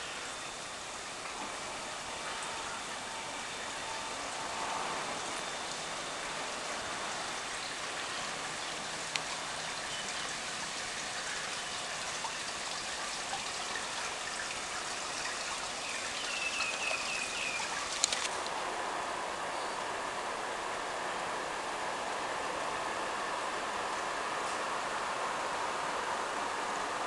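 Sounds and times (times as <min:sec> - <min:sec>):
water trickling and splashing: 0:00.0 - 0:18.5.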